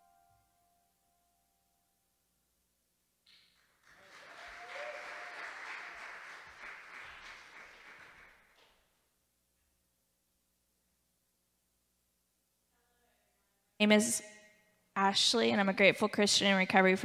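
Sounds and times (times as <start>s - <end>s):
audience applauding: 3.5s - 8.8s.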